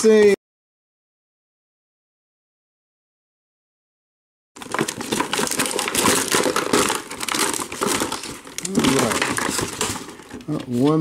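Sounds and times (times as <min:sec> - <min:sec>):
plastic packaging crinkling: 0:04.6 - 0:11.0.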